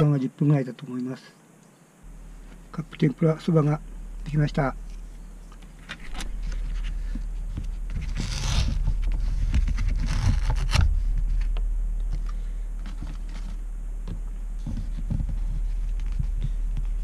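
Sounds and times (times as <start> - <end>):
steady low hum: 1.4 - 17.0
paper lid peeling off: 4.8 - 13.6.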